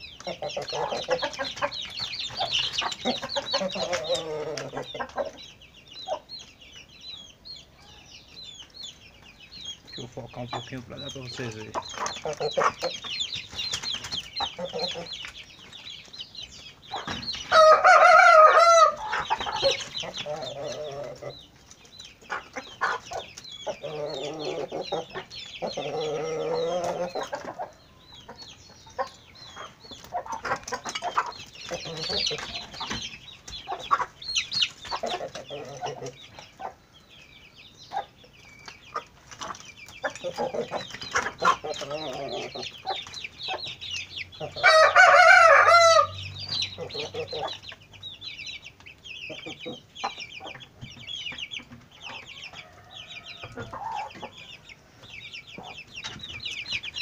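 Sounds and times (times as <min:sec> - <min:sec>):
chickens clucking: 0:00.0 - 0:57.0
rooster crowing: 0:17.5 - 0:19.2, 0:44.6 - 0:46.2, 0:52.3 - 0:54.1.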